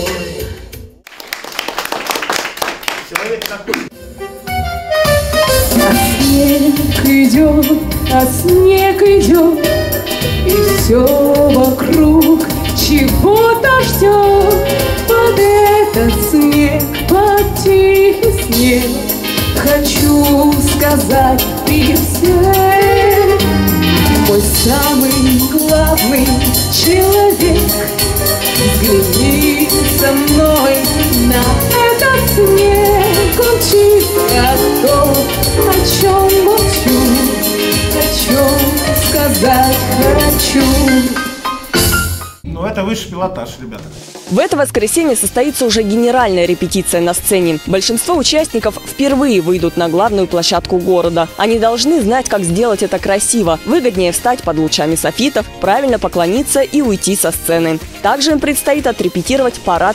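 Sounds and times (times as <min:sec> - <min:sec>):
instrumental accompaniment with beat: 0:00.0 - 0:02.0, 0:03.6 - 0:59.9
woman singing into a microphone: 0:05.7 - 0:41.4.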